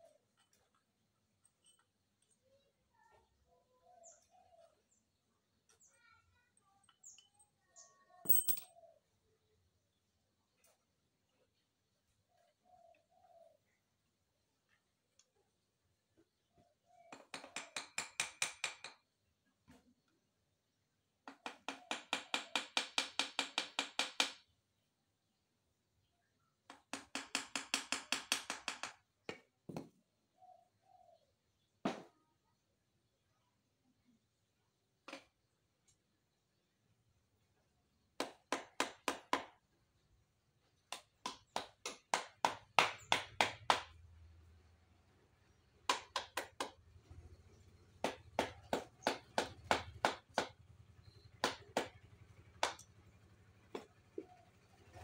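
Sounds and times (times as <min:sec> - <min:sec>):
hammer knocking on wooden block: 0:17.1 - 0:19.0, 0:38.2 - 0:39.6, 0:40.9 - 0:44.0, 0:45.9 - 0:46.8, 0:48.0 - 0:50.6, 0:51.4 - 0:52.0.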